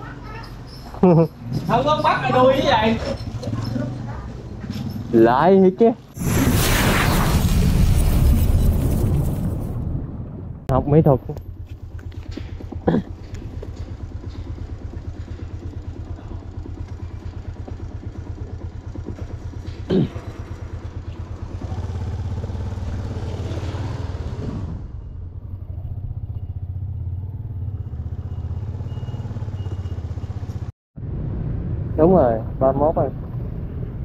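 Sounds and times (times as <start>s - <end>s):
motorbike engine rumbling: 0.0s - 5.8s, 10.7s - 30.7s
road and wind noise: 0.0s - 34.0s.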